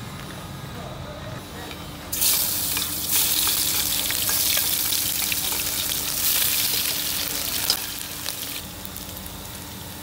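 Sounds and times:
garlic and chillies sizzling in oil: 2.1 - 10.0.

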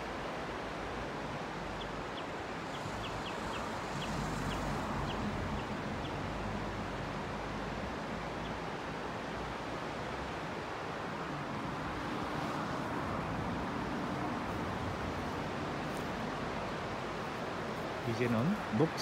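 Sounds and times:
stream running over rocks: 0.0 - 19.0
bird chirping: 1.8 - 6.2.

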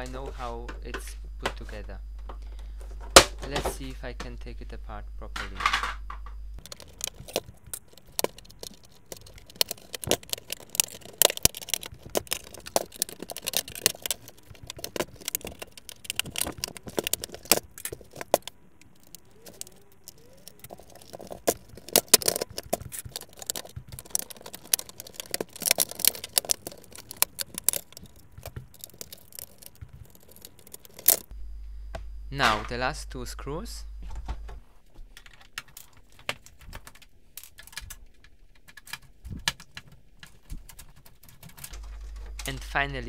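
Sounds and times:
plastic clicks and scrapes: 5.3 - 31.3, 35.0 - 43.0.

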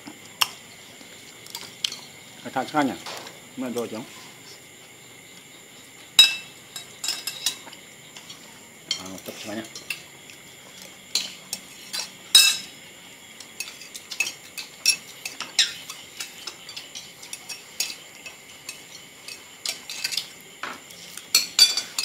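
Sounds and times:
cutlery clinking on ceramic plates: 6.2 - 10.1, 11.1 - 12.7, 13.6 - 22.0.

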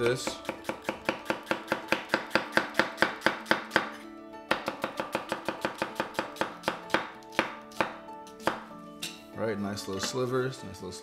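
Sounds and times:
knife chopping on wooden board: 0.0 - 8.7.

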